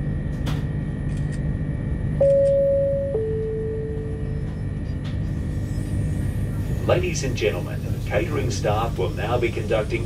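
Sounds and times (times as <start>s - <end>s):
moving train rumble: 4.0s - 10.0s.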